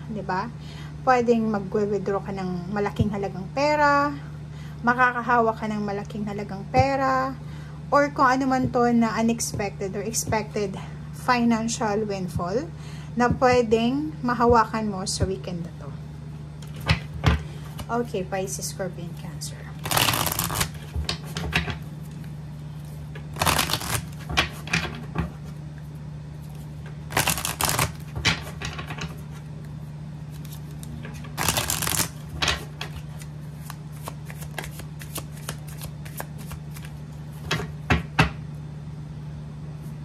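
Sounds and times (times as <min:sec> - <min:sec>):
cards riffle-shuffled: 0:19.8 - 0:21.4, 0:22.8 - 0:24.6, 0:26.4 - 0:28.6, 0:30.3 - 0:37.5.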